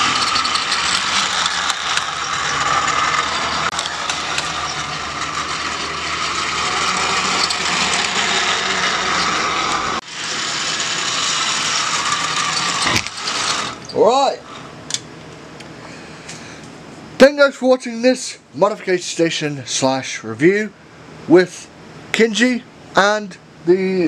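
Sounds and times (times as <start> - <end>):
toy train motor whirring: 0.0 - 14.7.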